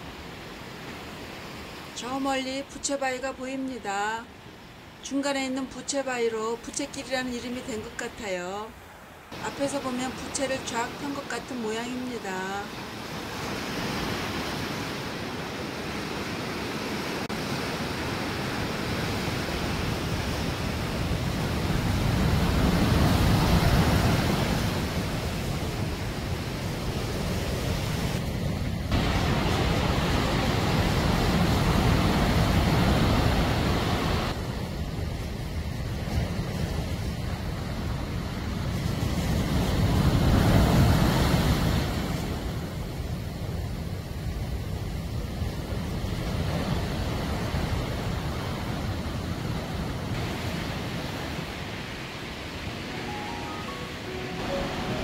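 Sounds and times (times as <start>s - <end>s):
sea waves washing over rocks: 12.8s - 55.0s.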